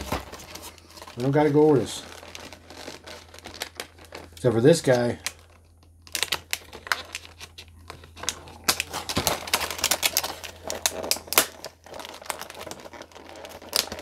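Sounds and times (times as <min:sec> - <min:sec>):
plastic packaging crinkling: 0:00.0 - 0:14.0.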